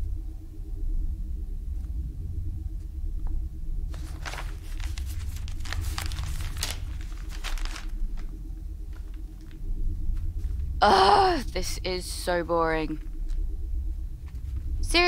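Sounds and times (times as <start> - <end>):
low rumbling hum: 0.0 - 15.0
rustling crinkling noise: 3.8 - 10.8, 12.9 - 14.9.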